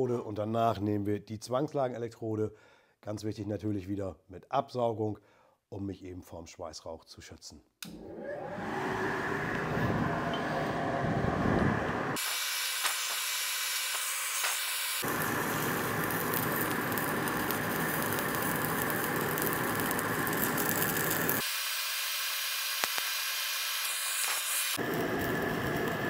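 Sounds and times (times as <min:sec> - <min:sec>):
welding arc crackling and hissing: 0:12.2 - 0:26.0.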